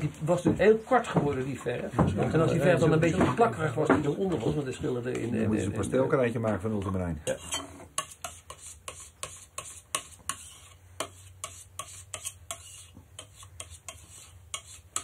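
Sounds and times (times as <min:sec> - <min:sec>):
palette knife scraping paint: 0:06.5 - 0:15.0.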